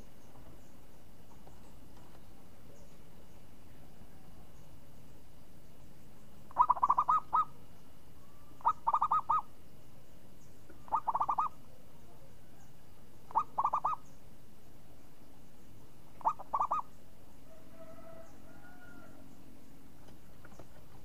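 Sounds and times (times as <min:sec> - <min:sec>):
dove cooing: 0:06.5 - 0:07.6, 0:08.2 - 0:09.5, 0:10.7 - 0:11.8, 0:13.3 - 0:14.0, 0:16.2 - 0:16.9.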